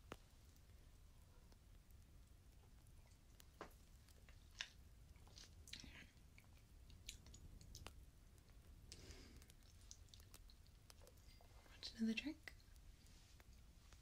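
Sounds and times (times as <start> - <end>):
wet lip and tongue clicks: 3.0 - 8.0, 8.9 - 11.2
soft breath: 8.9 - 9.6.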